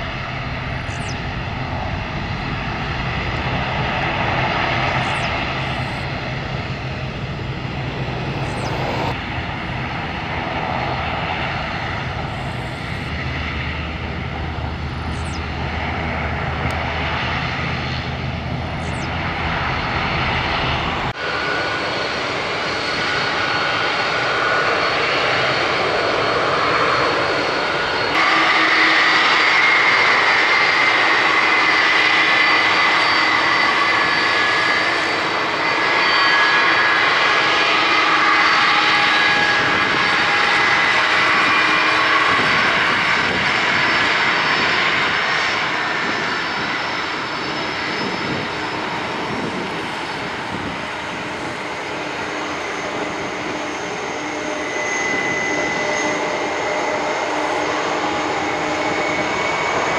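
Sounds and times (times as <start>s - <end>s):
jet engines at high power: 0.0s - 59.9s
jet engines high whine: 0.0s - 59.9s.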